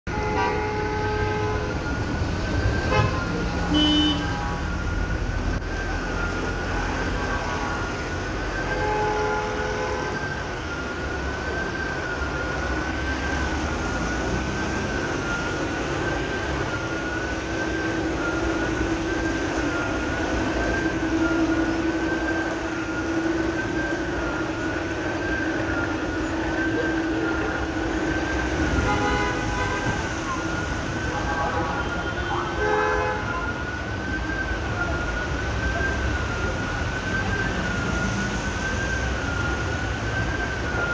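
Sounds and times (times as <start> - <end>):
traffic on wet road: 0.1 - 40.9
wavering warning siren: 0.1 - 40.9
car horn toots: 2.9 - 4.6, 28.8 - 30.2.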